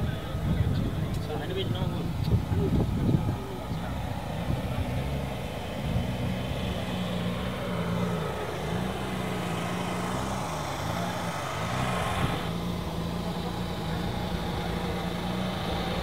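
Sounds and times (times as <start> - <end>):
truck engine idling: 3.3 - 16.0.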